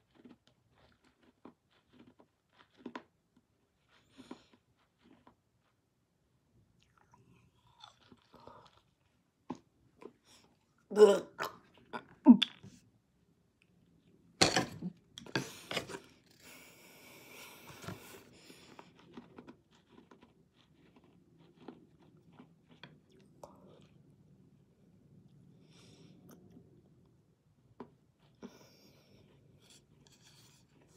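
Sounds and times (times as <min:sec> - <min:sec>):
person chewing crunchy candy: 0:00.0 - 0:05.8, 0:06.8 - 0:10.5, 0:18.2 - 0:24.1.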